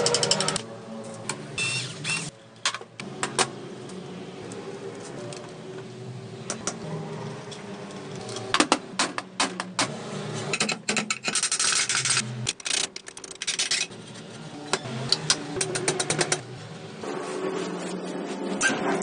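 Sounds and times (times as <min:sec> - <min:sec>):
metal parts clicking and knocking: 0:10.5 - 0:14.0.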